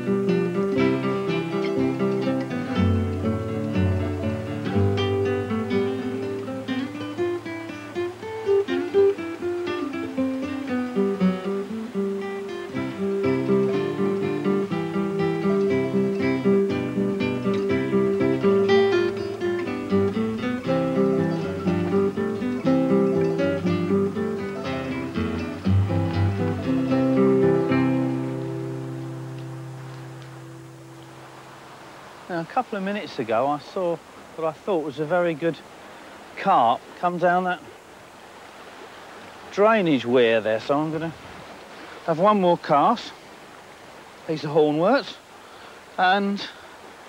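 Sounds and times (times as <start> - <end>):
acoustic guitar music: 0.0 - 31.9.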